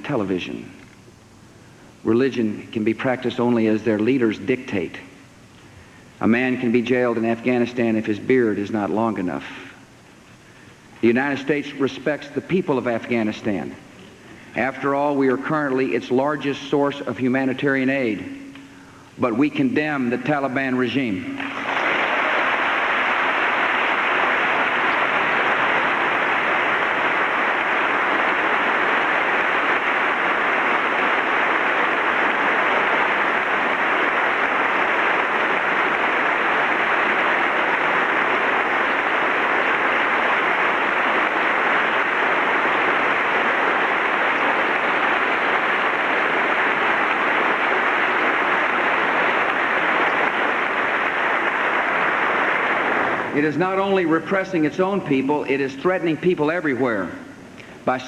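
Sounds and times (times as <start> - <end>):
large audience applauding: 21.4 - 54.0.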